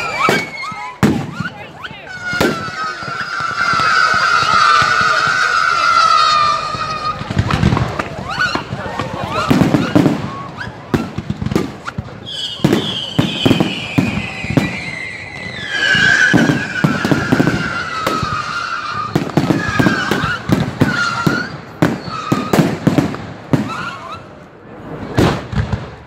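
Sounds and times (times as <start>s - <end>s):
firework whistles: 0.0s - 25.6s
firework bangs and crackles: 0.0s - 26.0s.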